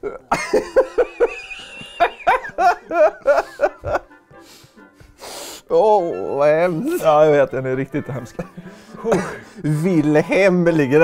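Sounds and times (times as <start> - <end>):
person giggling: 0.0 - 4.2, 8.3 - 9.4.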